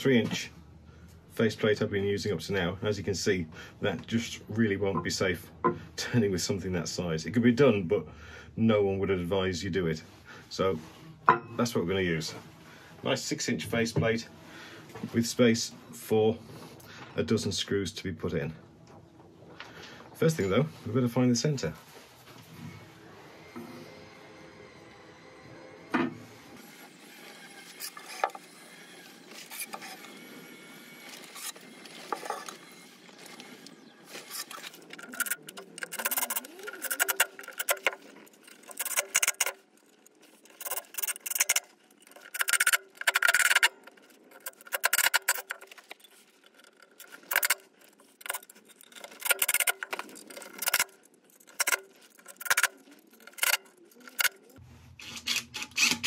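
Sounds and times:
cordless driver driving screws: 31.2s - 56.0s.

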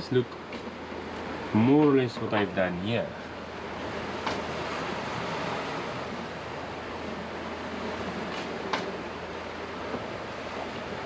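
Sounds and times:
rushing water: 0.0s - 11.0s
rushing wind: 3.1s - 11.0s.

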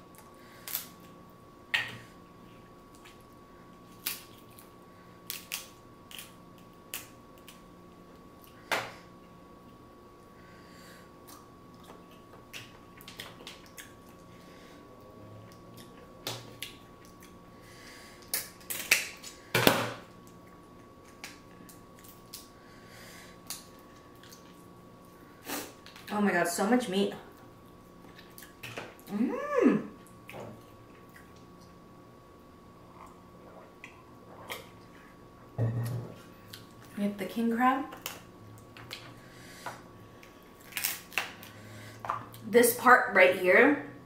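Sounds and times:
crab shells cracking: 4.0s - 7.6s, 18.2s - 19.4s, 40.6s - 41.4s.

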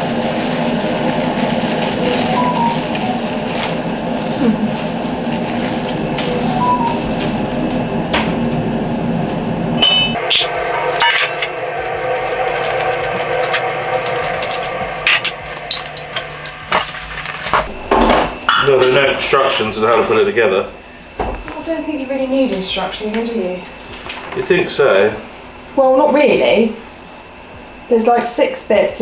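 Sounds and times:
paper packaging rustling: 0.0s - 7.4s, 10.4s - 17.7s.

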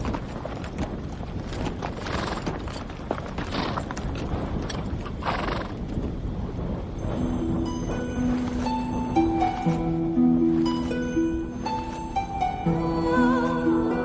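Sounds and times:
hooves clopping on hard ground: 0.0s - 10.0s.

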